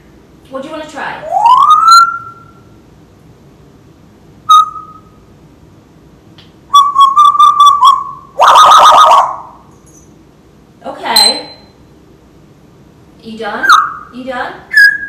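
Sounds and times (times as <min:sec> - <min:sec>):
parrot whistling: 0:01.2 - 0:02.7, 0:04.5 - 0:05.2, 0:06.7 - 0:09.6, 0:13.6 - 0:14.1, 0:14.7 - 0:15.0
parrot rough call: 0:06.7 - 0:09.6.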